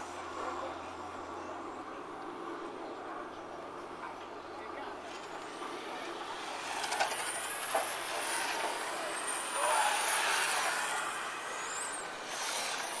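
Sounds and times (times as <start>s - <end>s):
toy motorcycle motors whining: 6.8s - 13.0s.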